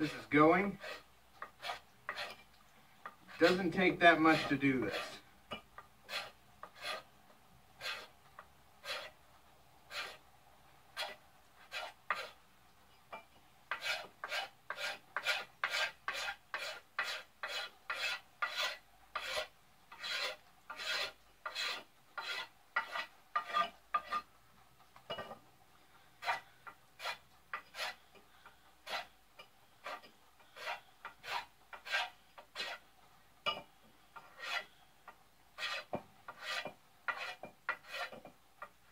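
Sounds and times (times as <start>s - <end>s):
knife scraping wood: 0.0s - 5.2s, 6.0s - 7.1s, 7.8s - 8.2s, 8.8s - 9.2s, 9.9s - 10.2s, 11.0s - 12.4s, 13.7s - 24.3s, 26.2s - 29.2s, 29.8s - 32.8s, 34.2s - 34.8s, 35.6s - 38.7s.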